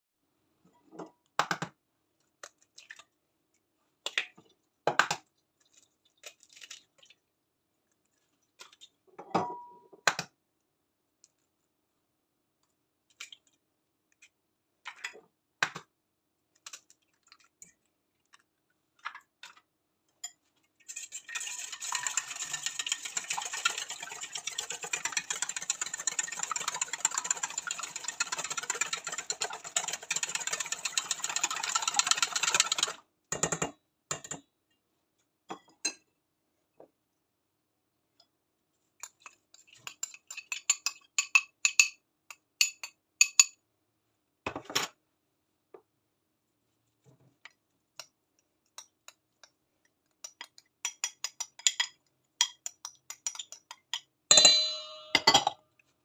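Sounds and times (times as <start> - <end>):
wire whisk beating in steel bowl: 20.9 - 33.0, 54.3 - 55.5.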